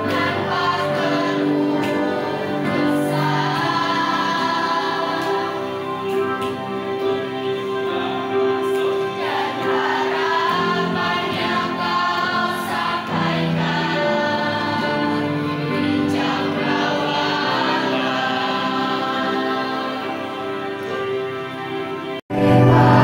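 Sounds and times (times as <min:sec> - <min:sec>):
children's choir singing: 0:00.0 - 0:23.0
sustained accompaniment: 0:00.0 - 0:23.0.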